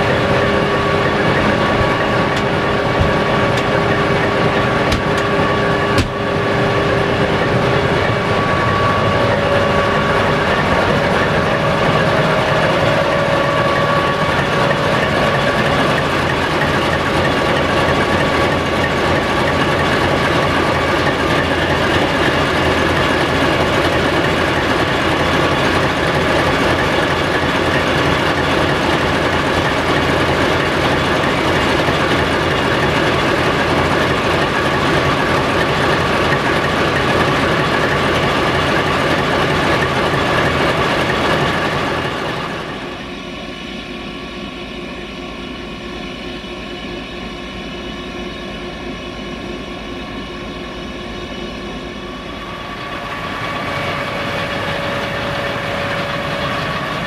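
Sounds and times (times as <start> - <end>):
steady high tones: 0.0 - 26.4
locomotive diesel engine running: 0.0 - 57.0.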